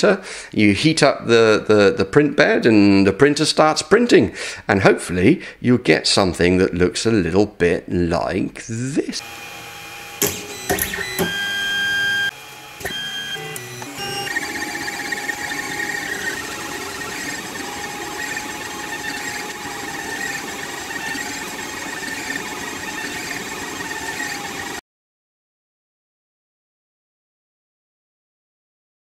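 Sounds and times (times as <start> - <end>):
stepper motors whining: 9.2 - 24.8
printer clicks: 10.2 - 24.5.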